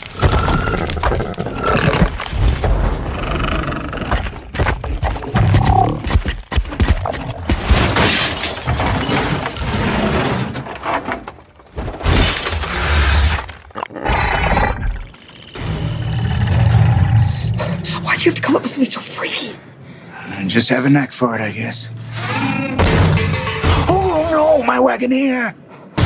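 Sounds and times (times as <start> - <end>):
glass shattering: 7.8 - 9.6, 12.0 - 13.0
creature roars: 15.7 - 17.6, 22.1 - 22.9.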